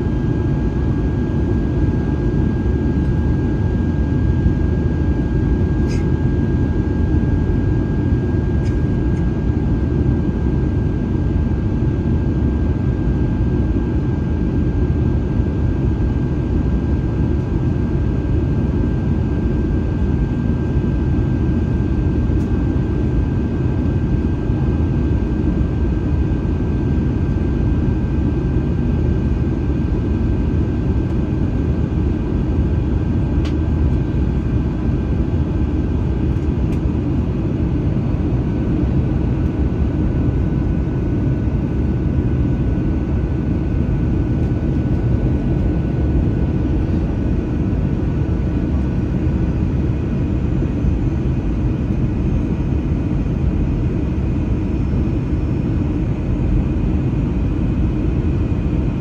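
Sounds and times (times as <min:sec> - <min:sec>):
airplane cabin roar: 0:00.0 - 0:59.0.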